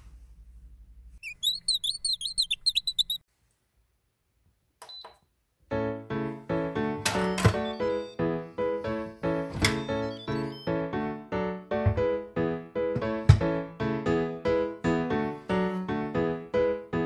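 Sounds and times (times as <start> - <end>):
high chirps: 1.2 - 3.2, 7.2 - 11.0
keyboard music: 5.7 - 17.0
short electronic beep: 7.2 - 8.3, 9.6 - 10.9.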